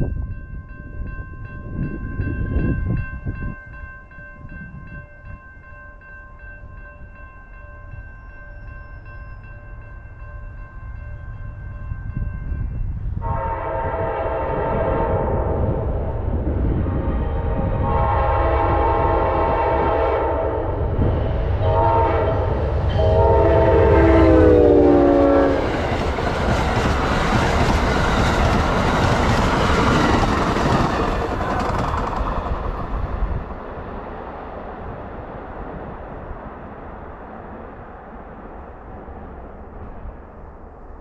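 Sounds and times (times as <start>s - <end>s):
train horn blasts: 13.2s - 16.1s, 17.1s - 25.8s
train cars clattering on rails: 25.6s - 33.4s.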